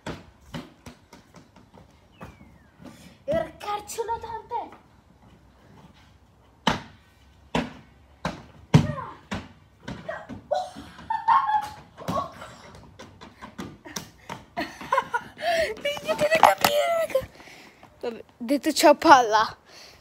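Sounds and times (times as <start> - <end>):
boy vocal sounds: 15.4 - 17.4.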